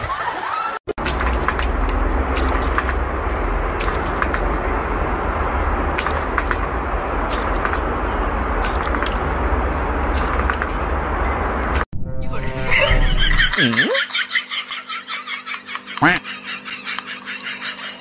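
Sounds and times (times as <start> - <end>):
low rumble: 1.0 - 13.6.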